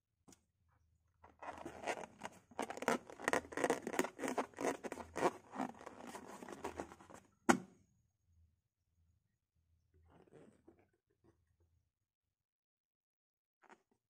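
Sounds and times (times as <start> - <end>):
rubber balloon rubbing and rustling: 1.4 - 7.2.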